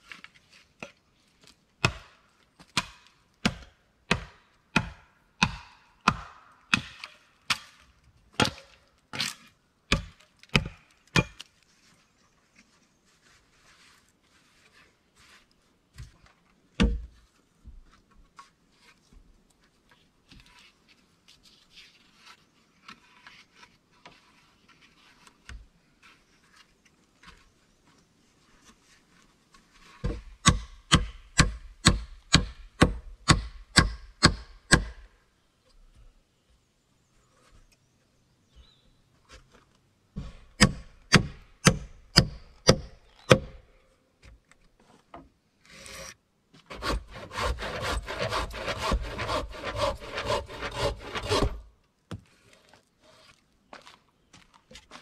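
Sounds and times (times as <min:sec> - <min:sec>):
blade chopping wood: 0:01.8 - 0:07.8, 0:40.2 - 0:43.6, 0:46.7 - 0:51.6.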